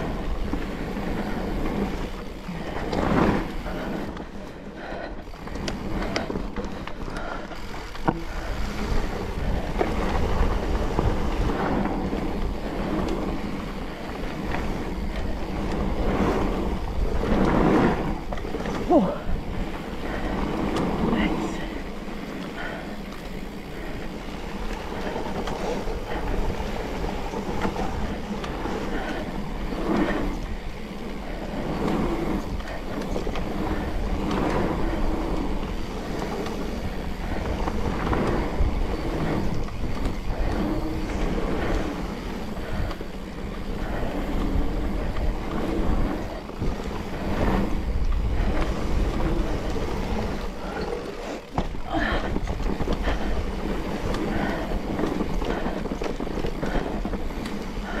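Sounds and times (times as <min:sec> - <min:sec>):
bike tyres rumbling on dirt: 0:00.0 - 0:58.0
bike knocks and rattles: 0:29.9 - 0:58.0.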